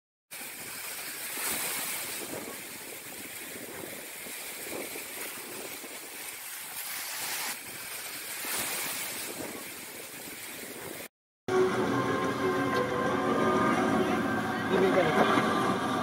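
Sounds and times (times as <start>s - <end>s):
waves breaking on shore: 0.3s - 11.1s.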